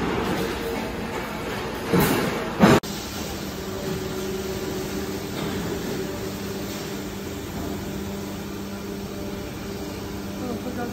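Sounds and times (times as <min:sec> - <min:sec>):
factory machinery drone: 0:00.0 - 0:10.9.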